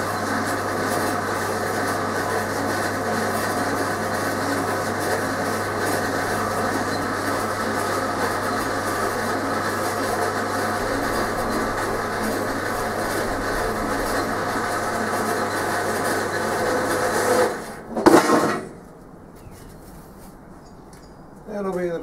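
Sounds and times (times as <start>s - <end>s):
bandsaw humming: 0.0s - 18.8s.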